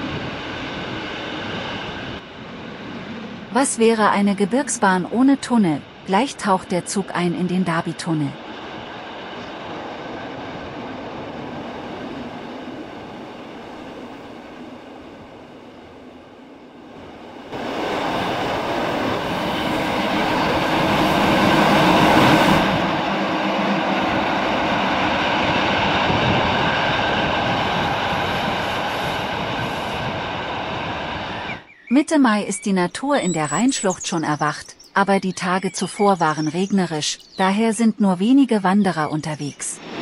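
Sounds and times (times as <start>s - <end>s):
train wheels rumbling on rails: 16.9s - 31.6s.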